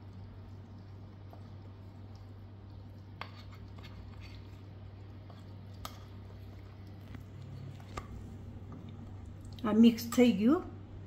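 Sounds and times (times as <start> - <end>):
steady low hum: 0.0 - 11.0
spoon scraping batter: 0.1 - 9.2.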